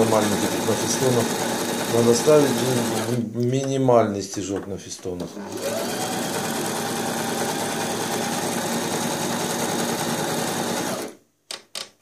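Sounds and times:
sewing machine running: 0.0 - 3.2, 5.2 - 11.2.

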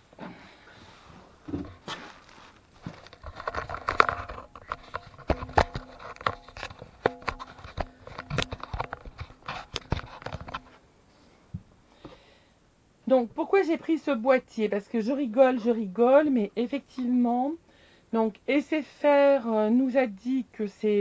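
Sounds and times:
faint steady hum: 0.0 - 21.0
rustling: 0.2 - 12.2
camera handling knocks and clicks: 3.4 - 10.7.

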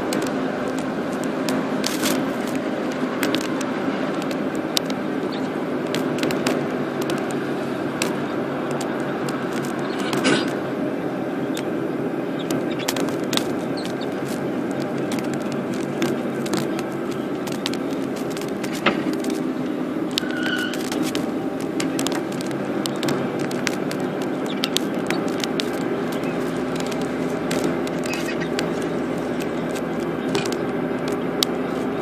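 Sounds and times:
small rattles and clicks: 0.0 - 10.6, 11.5 - 32.0
car engine and tyre noise: 0.0 - 32.0
brief squeak: 20.2 - 20.8.

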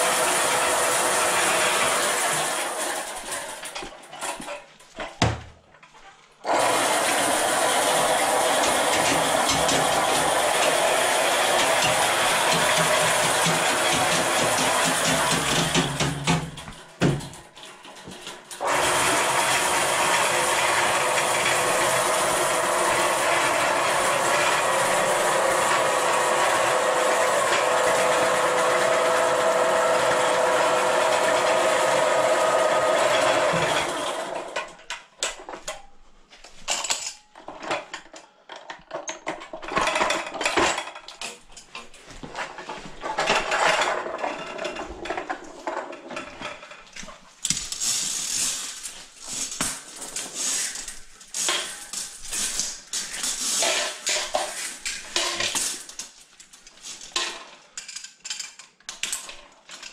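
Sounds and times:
drain machine motor running: 0.0 - 3.6, 6.5 - 16.5, 18.6 - 34.6.

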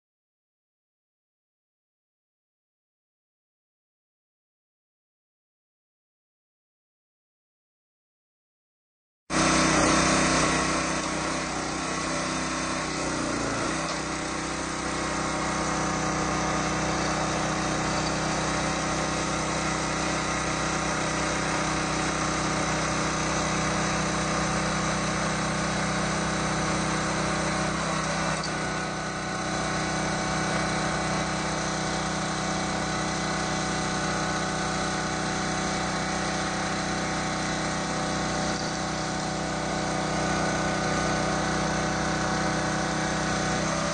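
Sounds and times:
petrol engine running: 9.3 - 43.9.

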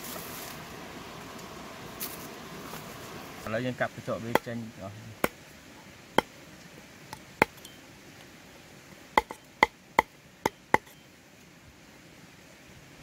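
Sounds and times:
cleaver chopping on wooden board: 5.2 - 5.4, 9.2 - 10.9.

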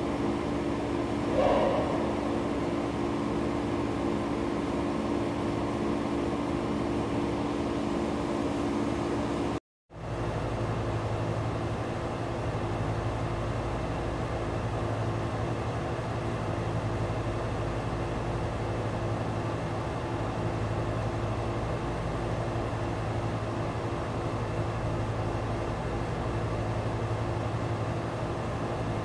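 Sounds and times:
deep steady drone: 0.0 - 8.6
mechanical hum: 0.0 - 29.0.

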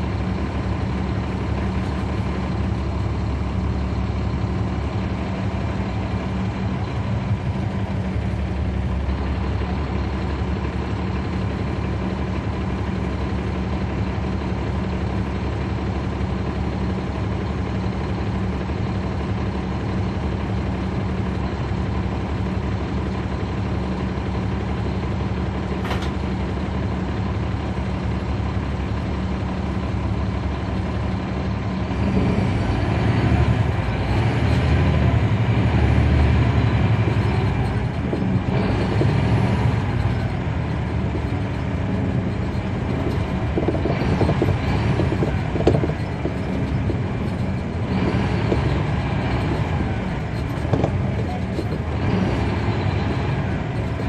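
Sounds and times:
bus diesel engine drone: 0.0 - 54.0.

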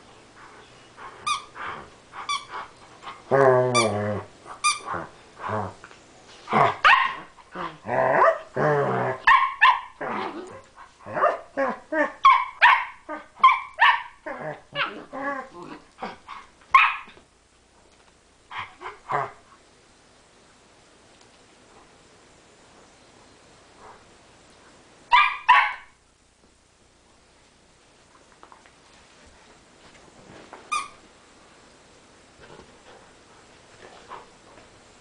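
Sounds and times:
dogs growling: 14.2 - 16.5.

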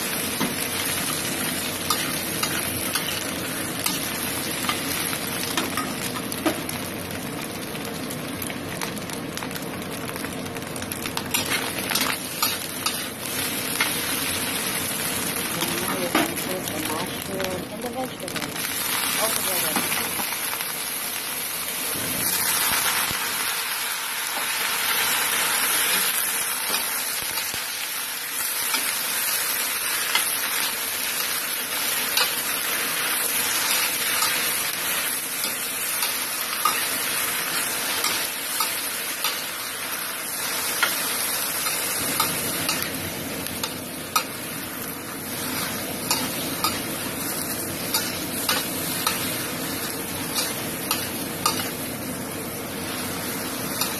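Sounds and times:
vegetables sizzling in hot oil: 0.0 - 53.9
spatula scraping and knocking wok: 31.8 - 39.8, 40.4 - 52.0, 52.7 - 53.9.

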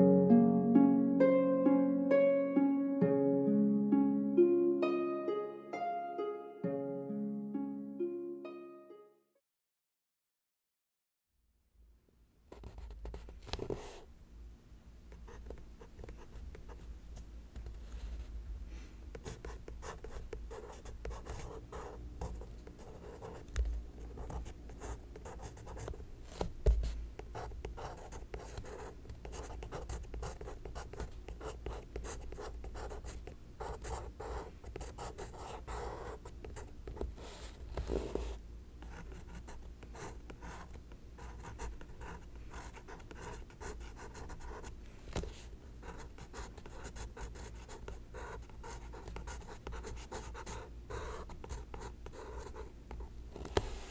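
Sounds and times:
pencil scratching on paper: 24.2 - 26.0, 27.4 - 36.3, 45.8 - 52.6.

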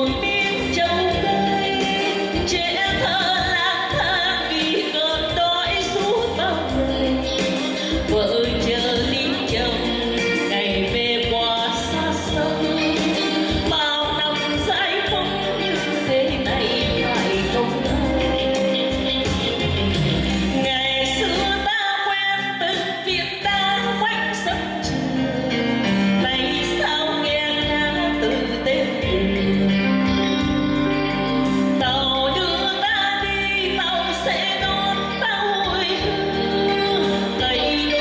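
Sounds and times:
electric guitar: 0.0 - 38.0
keyboard: 0.0 - 38.0
woman singing into a microphone: 0.0 - 38.0.

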